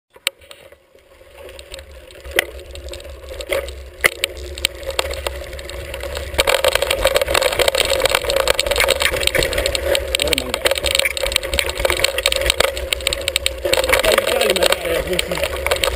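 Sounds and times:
bike rattling: 0:00.1 - 0:15.9
bike tyres rolling on dirt: 0:00.1 - 0:15.9.

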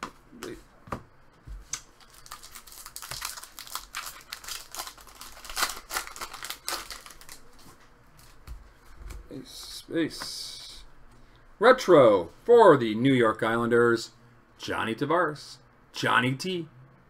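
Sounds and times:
foil wrapper crinkling: 0:02.0 - 0:07.7.

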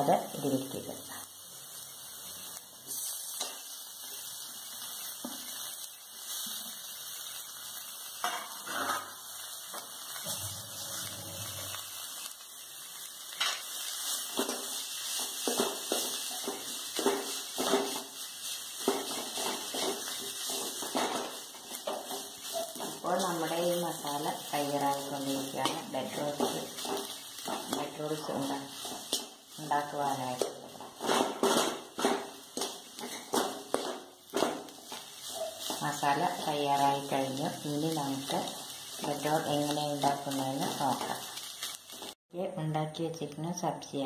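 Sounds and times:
steel spoon scraping a pan: 0:08.1 - 0:12.4, 0:13.2 - 0:42.2.

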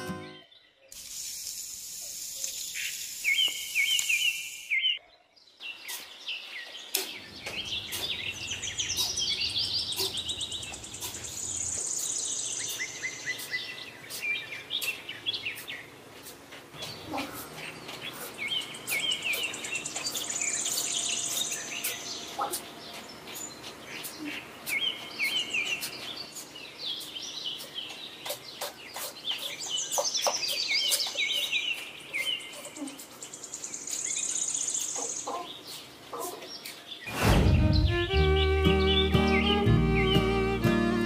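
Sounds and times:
birds chirping and trilling: 0:00.0 - 0:01.1, 0:02.2 - 0:41.0
high steady insect-like hiss: 0:00.9 - 0:04.7.

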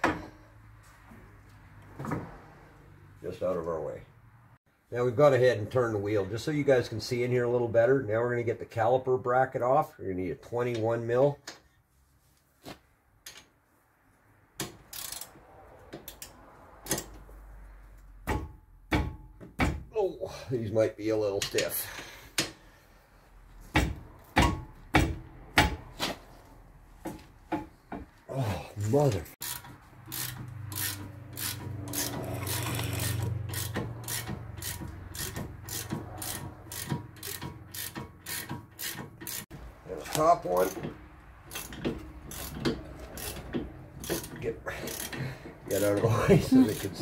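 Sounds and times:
wrench clicking and knocking: 0:14.6 - 0:15.4, 0:16.0 - 0:17.2, 0:29.4 - 0:39.5, 0:40.6 - 0:45.6
socket ratchet rasping: 0:14.9 - 0:15.3, 0:29.4 - 0:39.5, 0:41.4 - 0:45.8.

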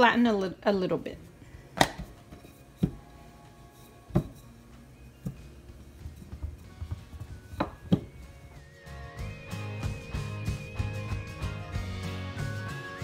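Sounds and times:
soft background music: 0:00.0 - 0:13.0
rolling pin knocking on countertop: 0:01.8 - 0:03.0, 0:04.1 - 0:04.5, 0:05.2 - 0:08.2.

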